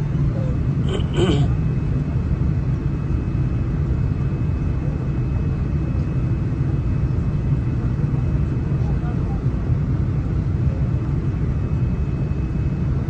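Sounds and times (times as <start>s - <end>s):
thin steady whine: 0.0s - 1.6s
engine and airflow rumble: 0.0s - 13.0s.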